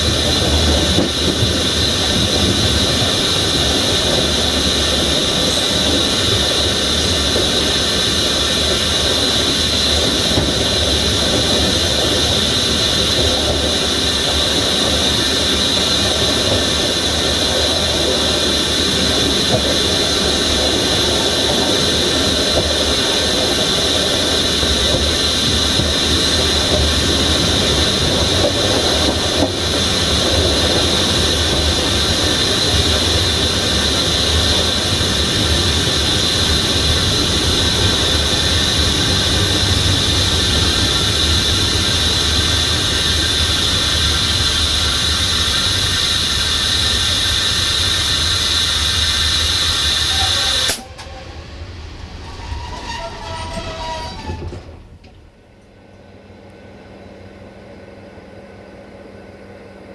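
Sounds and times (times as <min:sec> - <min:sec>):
train wheels rumbling on rail: 0:00.0 - 0:59.9
high-pitched wheel squeal: 0:49.8 - 0:54.8.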